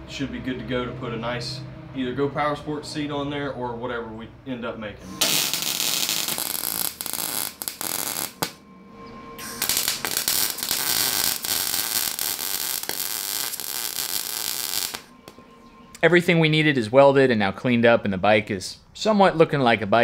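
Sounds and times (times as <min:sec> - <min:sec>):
arc welding crackling: 0:05.1 - 0:08.6, 0:09.4 - 0:15.4.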